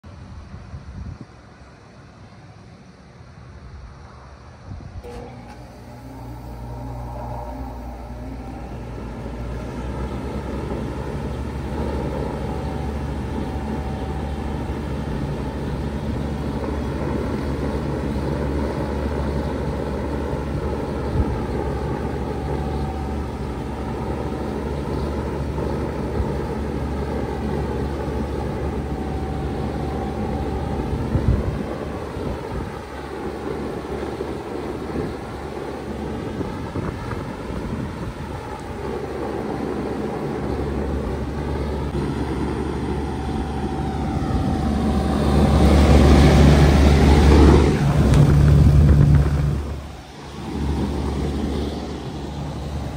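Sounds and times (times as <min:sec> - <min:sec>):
heat pump compressor hum and fan: 0:00.0 - 0:52.9.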